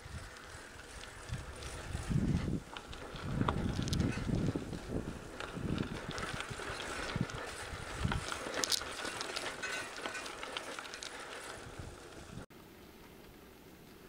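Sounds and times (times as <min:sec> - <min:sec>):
bicycle tyres crunching on dirt: 0:00.0 - 0:14.0
bike clicks and rattles: 0:00.0 - 0:14.0
wind thumps on microphone: 0:01.3 - 0:08.3.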